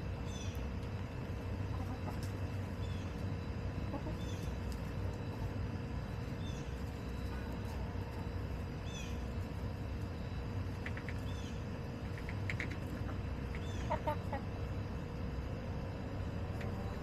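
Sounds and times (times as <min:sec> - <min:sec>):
low outdoor rumble: 0:00.0 - 0:17.0
hens clucking: 0:00.8 - 0:09.3, 0:10.6 - 0:15.2, 0:16.4 - 0:17.0
hens chirpy calls: 0:01.5 - 0:05.6, 0:10.7 - 0:14.9.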